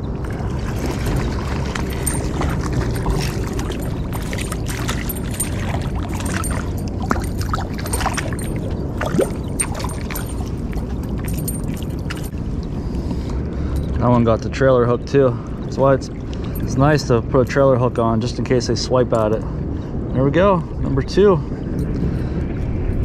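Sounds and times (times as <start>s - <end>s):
fish splashing in shallow water: 0.0s - 12.8s
steady low rumble: 0.0s - 23.0s.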